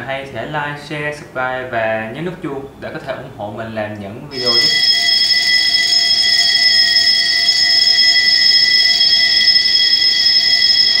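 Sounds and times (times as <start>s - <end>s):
high-pitched electronic tone: 4.3s - 11.0s.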